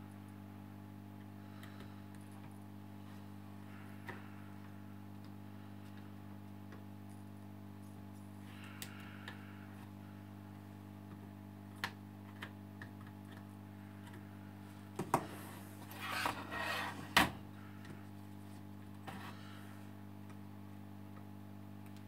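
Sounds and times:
rubbing scrape: 15.4 - 17.1.

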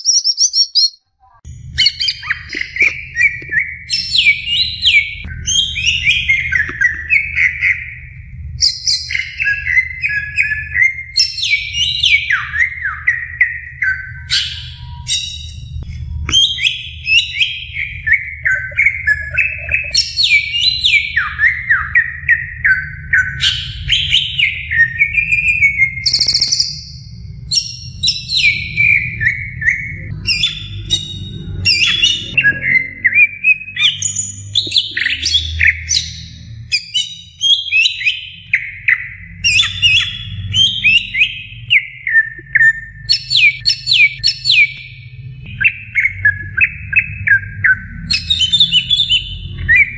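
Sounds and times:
bird singing whistled phrases: 0.0 - 1.0, 1.8 - 15.6, 16.3 - 31.1, 31.7 - 44.9, 45.5 - 49.9.

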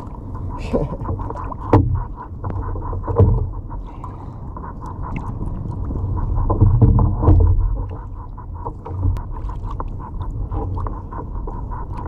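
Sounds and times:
fish fluttering against kayak: 0.0 - 12.0
sharp knocks on hull: 1.6 - 2.2, 3.0 - 3.5, 6.5 - 7.8.

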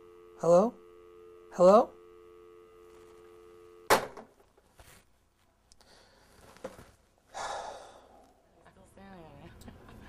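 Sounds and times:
telephone dial tone: 0.0 - 4.0
faint handling sounds: 2.8 - 3.7, 4.4 - 7.3.

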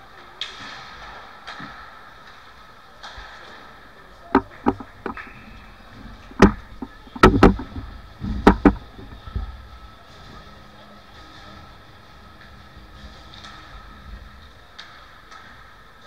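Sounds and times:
hockey sticks and puck clacking: 0.1 - 9.6, 12.4 - 16.0
thuds against boards: 4.4 - 5.3, 6.3 - 9.2.

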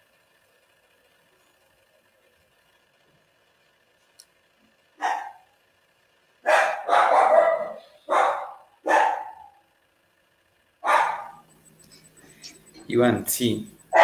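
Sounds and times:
dog barking: 5.0 - 5.5, 6.4 - 9.6, 10.8 - 11.4.

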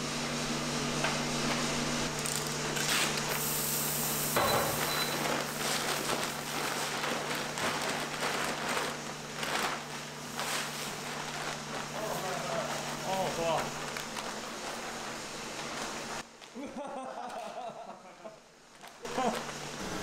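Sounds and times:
plastic bag rustling: 1.4 - 16.3.

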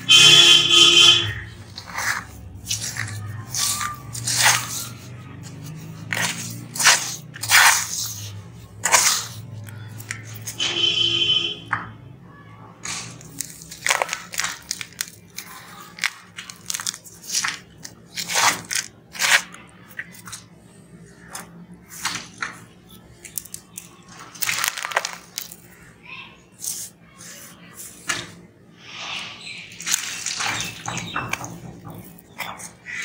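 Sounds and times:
gritty crunching of sand mix: 1.3 - 10.6, 12.8 - 20.3, 23.3 - 25.8.

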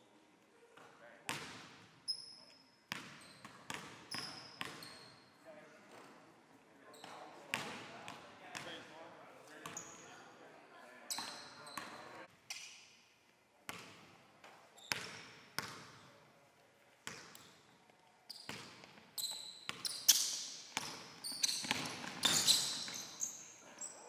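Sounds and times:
sneakers squeaking on court: 1.3 - 6.2, 6.9 - 7.8, 9.6 - 10.1, 11.1 - 12.8, 13.7 - 16.1, 17.0 - 24.0.

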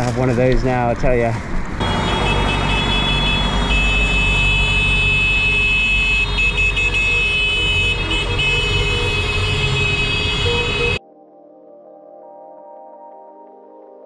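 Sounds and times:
passing traffic rumble: 0.0 - 11.0
vehicle horns blasting: 1.8 - 11.0.

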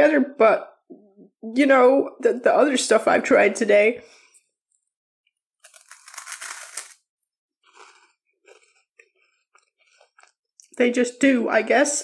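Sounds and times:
biting into crisp wafer: 5.6 - 8.9
chewing crunches: 5.6 - 10.8.

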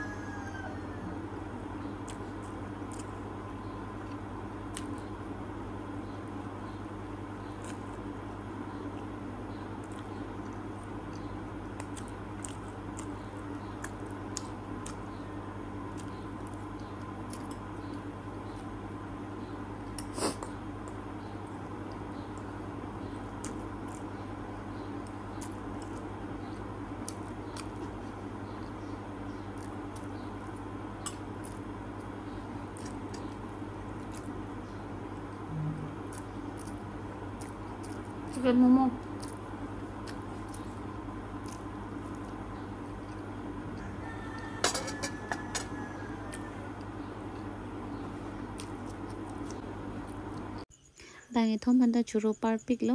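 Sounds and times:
steady background hum: 0.0 - 52.9
chewing noodles: 9.7 - 15.1, 15.9 - 18.7, 19.8 - 24.2, 24.9 - 28.8, 29.4 - 38.4, 39.0 - 44.5, 48.1 - 50.6.

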